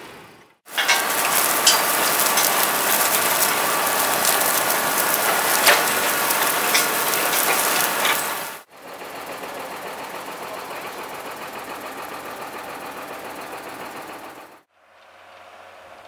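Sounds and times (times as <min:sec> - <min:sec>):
cultivator rattling through stony soil: 0:00.7 - 0:08.7.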